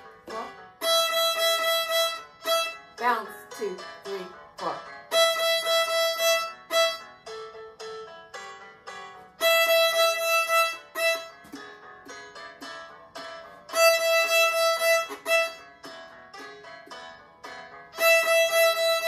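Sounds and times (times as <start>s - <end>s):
violin short repeated notes: 0.2s - 7.1s, 9.4s - 11.7s, 13.7s - 15.8s, 17.9s - 19.0s.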